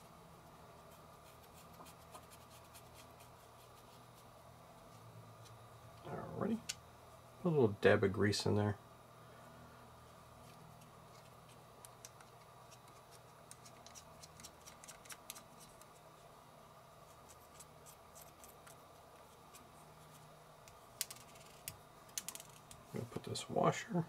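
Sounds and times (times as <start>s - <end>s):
faint steady hum: 0.0s - 24.0s
small parts clicking: 21.0s - 22.8s.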